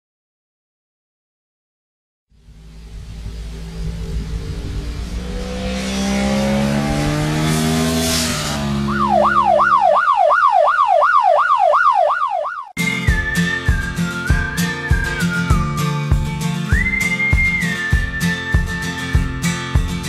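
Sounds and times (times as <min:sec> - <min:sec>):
motorcycle engine passing: 0:02.4 - 0:10.4
yelp siren wailing: 0:08.7 - 0:16.1
whistled tune: 0:12.6 - 0:19.6
plucked guitar: 0:12.8 - 0:20.0.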